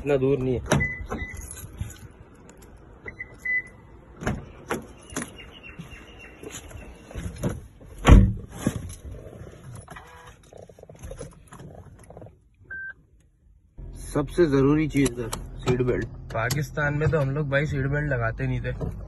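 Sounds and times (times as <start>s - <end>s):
car unlock beeps: 0.7s - 1.6s, 3.0s - 3.8s
car door shutting thump: 7.4s - 8.5s.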